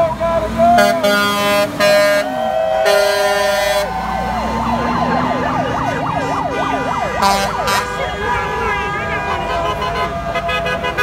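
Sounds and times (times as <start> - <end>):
passing traffic: 0.0 - 11.0
vehicle horn blast: 0.8 - 3.9, 6.5 - 11.0
siren sweeping up and down: 2.2 - 8.8.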